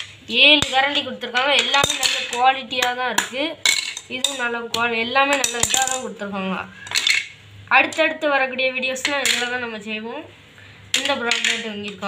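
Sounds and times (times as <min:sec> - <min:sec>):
wooden utensils clacking: 0:00.0 - 0:06.1, 0:11.0 - 0:12.0.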